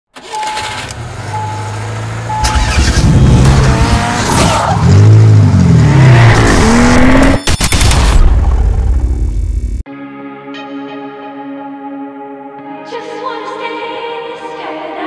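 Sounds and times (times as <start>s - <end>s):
car engine revving: 0.2s - 7.4s
short beeps: 1.3s - 1.7s, 2.3s - 2.7s.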